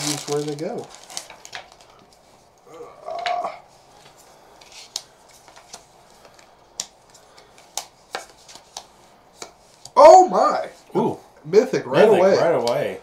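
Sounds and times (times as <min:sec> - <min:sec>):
cards snapping on wooden table: 0:06.8 - 0:10.0.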